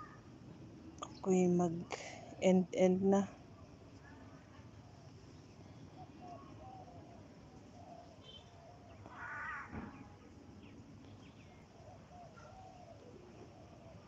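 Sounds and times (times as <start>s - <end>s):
birds calling: 5.4s - 14.0s.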